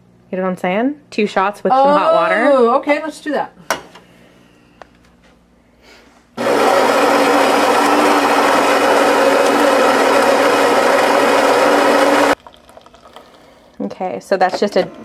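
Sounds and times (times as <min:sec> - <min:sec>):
coffee grinder grinding beans: 0:06.4 - 0:13.2.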